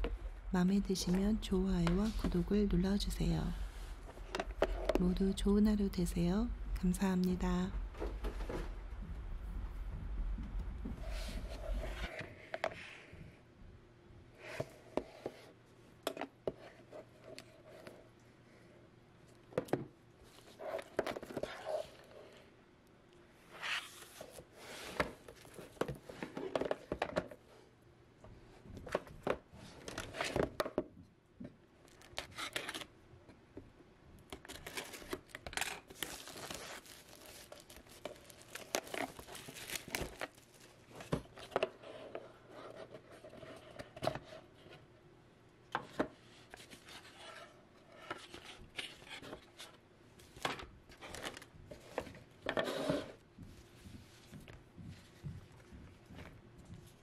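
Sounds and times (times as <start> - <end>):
plastic wrap crinkling and tearing: 34.4 - 41.1.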